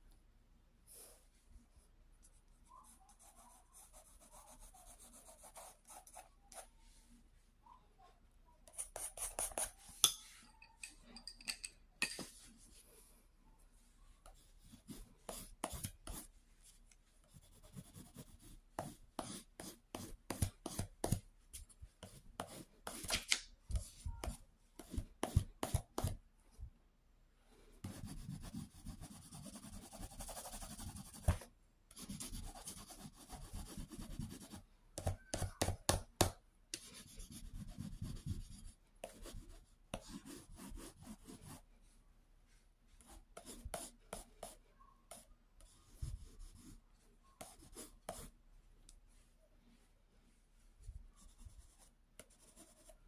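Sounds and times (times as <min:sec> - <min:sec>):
pencil scratching on paper: 0:02.3 - 0:06.7, 0:08.6 - 0:09.9, 0:14.2 - 0:16.3, 0:17.2 - 0:21.2, 0:22.0 - 0:26.2, 0:27.8 - 0:31.4, 0:32.0 - 0:41.6, 0:43.0 - 0:46.8, 0:47.4 - 0:48.3, 0:51.2 - 0:53.0.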